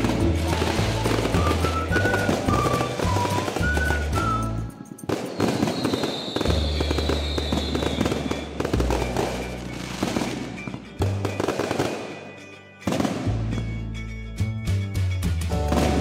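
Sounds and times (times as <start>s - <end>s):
music with bass line: 0.0s - 4.7s, 12.9s - 16.0s
high firework whistle: 0.0s - 13.5s
fireworks bursting and crackling: 0.0s - 14.1s, 14.7s - 16.0s.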